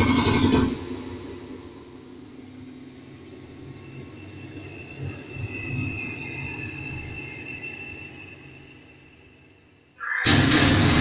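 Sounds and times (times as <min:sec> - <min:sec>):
high whistling tone: 0:03.7 - 0:10.3.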